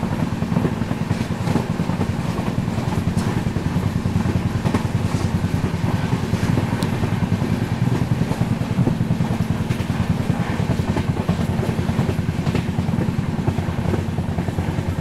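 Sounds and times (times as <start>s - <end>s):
passenger train rumbling: 0.0s - 15.0s.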